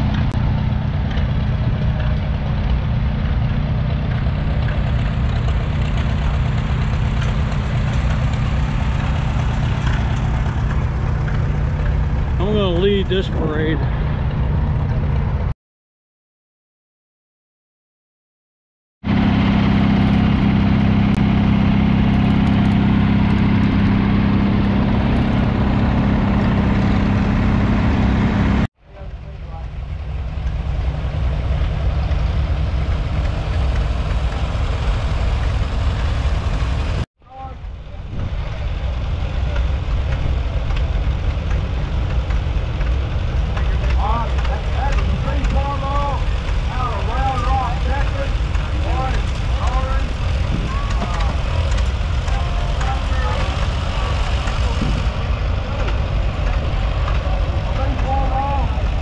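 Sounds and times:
tractor engines idling: 0.0 - 15.5, 19.0 - 59.0.

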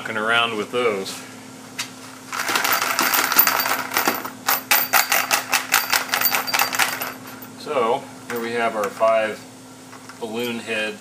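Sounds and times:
cartridge cases rattling in sifter: 2.3 - 7.3.

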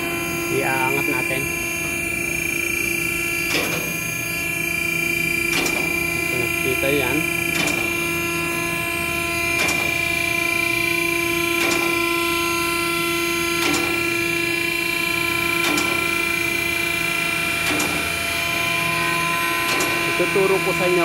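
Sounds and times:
hydraulic pump motor humming: 0.0 - 21.0
car lift sharp clicks: 5.5 - 6.0, 17.6 - 18.0.

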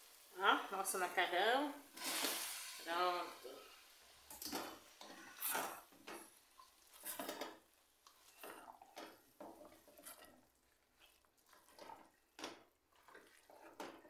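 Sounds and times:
spatula scraping a metal pot: 5.0 - 5.9, 6.8 - 7.5, 8.1 - 12.2, 12.9 - 14.0.

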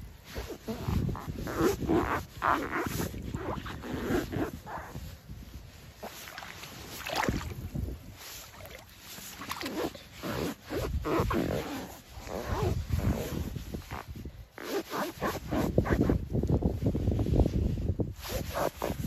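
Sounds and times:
rubber boots squeaking: 0.0 - 5.1, 5.8 - 16.2, 18.2 - 19.0
water sloshing: 5.8 - 10.6.

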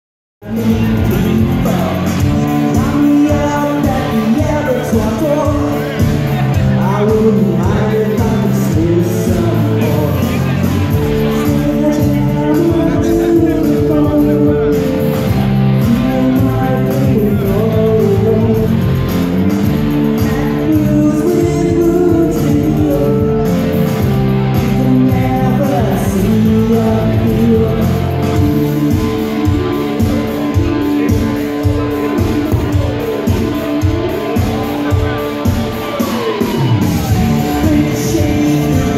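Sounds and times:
drums: 0.4 - 38.9
electric guitars: 0.4 - 38.9
lead singer: 0.4 - 38.9
live rock band playing: 0.4 - 38.9.

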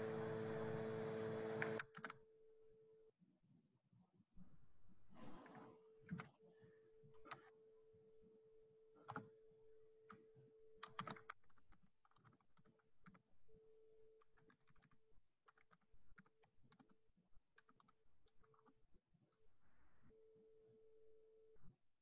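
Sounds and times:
keyboard typing: 10.8 - 11.4, 14.2 - 17.0.

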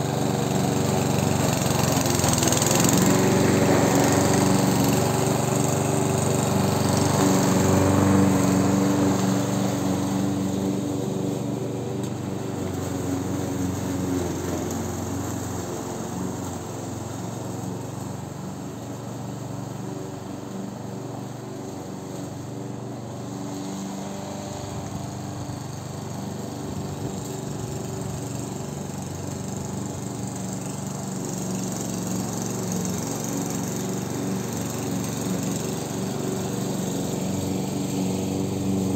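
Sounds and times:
petrol lawn mower running: 0.0 - 38.9.

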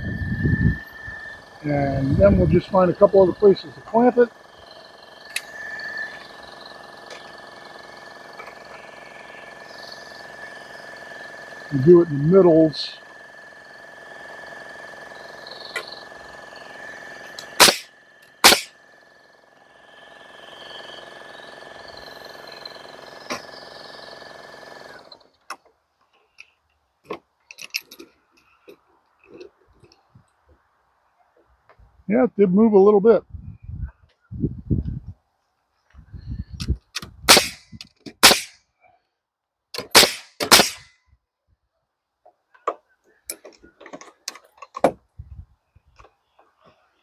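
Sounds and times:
nail gun firing: 17.4 - 18.7, 37.0 - 38.6, 39.8 - 40.9.

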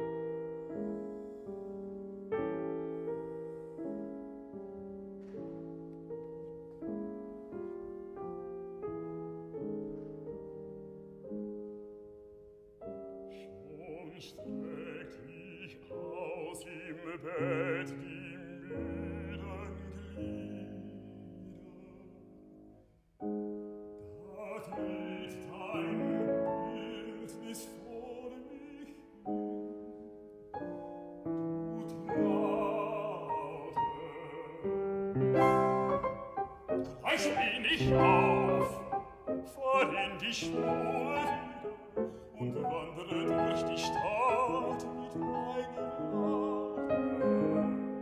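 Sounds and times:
grand piano chords: 0.0 - 48.0
baritone voice singing: 13.3 - 22.3, 24.1 - 30.2, 31.6 - 48.0.

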